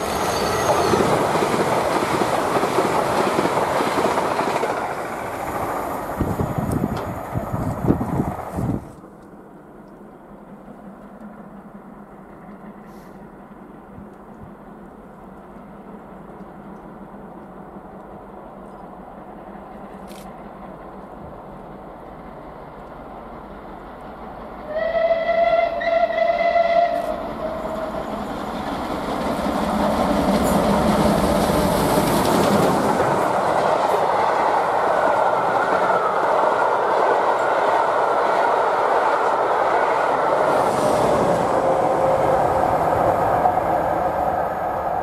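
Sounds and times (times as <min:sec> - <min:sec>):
steam locomotive whistle: 0:00.0 - 0:01.1, 0:24.6 - 0:28.0
train clattering past: 0:00.0 - 0:45.0.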